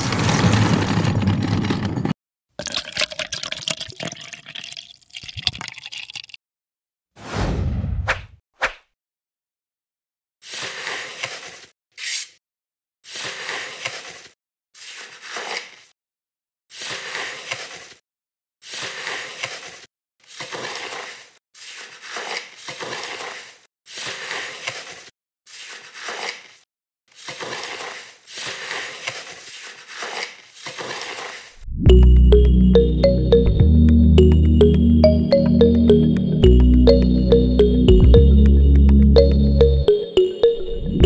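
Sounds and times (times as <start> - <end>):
trowel scraping wet concrete: 10.4 - 12.4, 13.1 - 15.9, 18.6 - 31.6.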